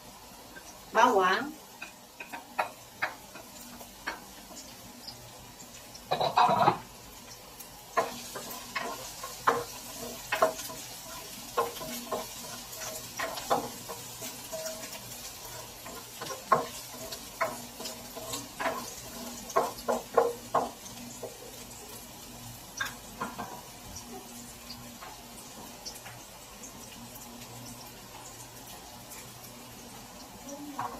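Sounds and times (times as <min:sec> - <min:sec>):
garlic sizzling in hot oil: 0:00.0 - 0:30.9
spatula scraping a wok: 0:08.0 - 0:21.4.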